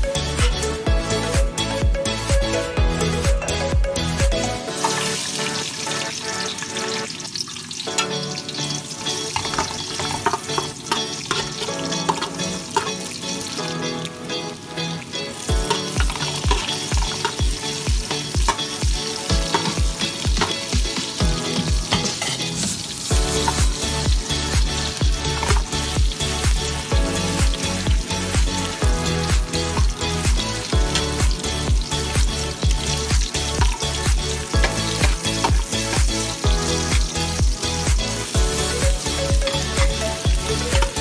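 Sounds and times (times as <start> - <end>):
ginger sizzling in oil: 4.6 - 41.0
metal spoon stirring in pot: 9.3 - 13.0.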